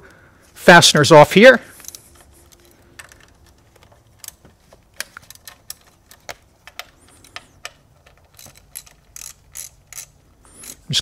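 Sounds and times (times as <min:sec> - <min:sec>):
ratchet clicking: 0:05.0 - 0:11.0.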